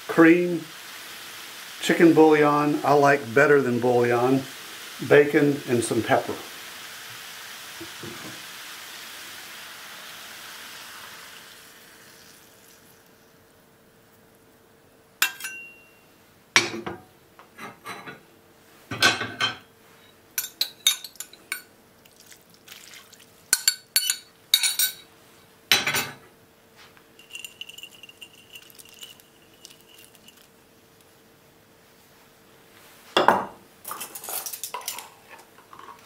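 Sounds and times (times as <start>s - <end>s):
faint steady hum: 0.0s - 36.0s
metal utensils clinking on skillet: 15.2s - 15.9s, 20.4s - 21.7s, 23.5s - 25.1s, 27.2s - 30.5s, 33.9s - 36.0s
glass measuring cup clinks: 27.2s - 30.5s.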